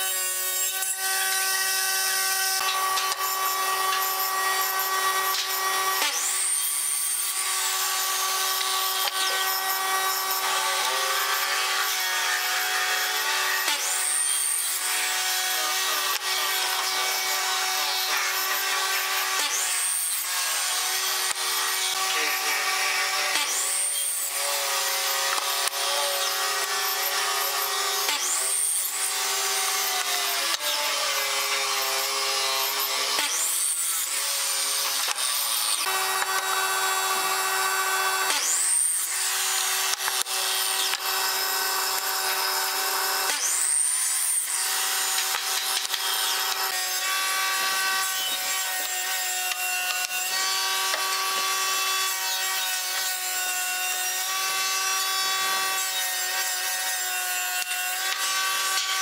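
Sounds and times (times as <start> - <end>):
table saw cutting a board: 0.0 - 59.0
miter saw chopping wood: 2.4 - 6.6, 8.5 - 9.6, 25.0 - 29.0, 34.8 - 36.9, 38.2 - 43.7, 44.4 - 47.0.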